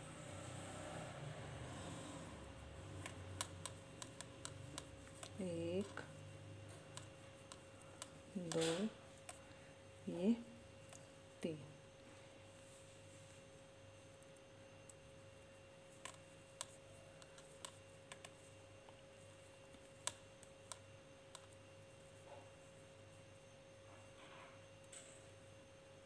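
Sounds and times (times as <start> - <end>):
faint steady hum: 0.0 - 26.0
knitting needles clicking: 2.8 - 6.0.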